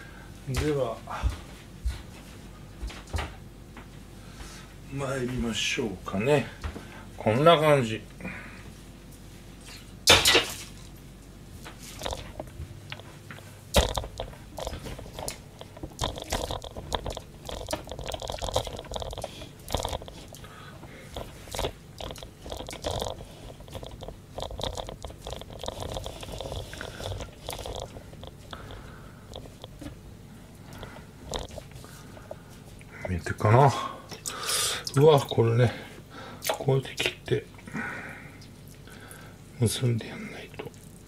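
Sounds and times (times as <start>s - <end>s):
crinkly rustles: 11.6s - 29.9s
small knocks and clicks: 12.0s - 30.0s.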